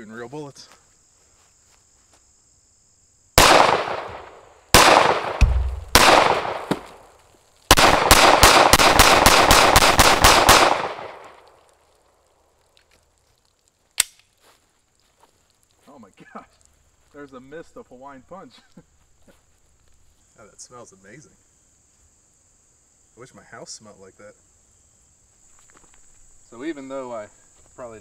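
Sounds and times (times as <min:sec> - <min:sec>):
pistol shots with echo: 0:03.4 - 0:06.9, 0:07.7 - 0:11.4.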